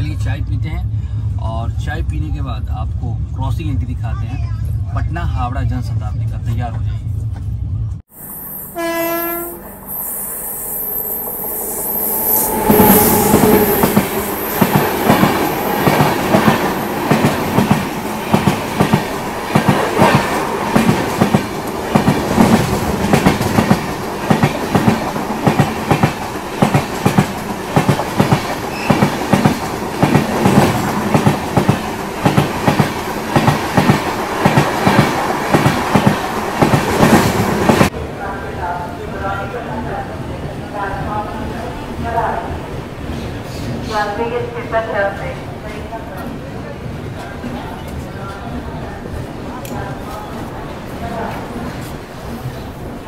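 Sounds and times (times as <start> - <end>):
train horn: 8.6 - 9.8, 12.2 - 14.1.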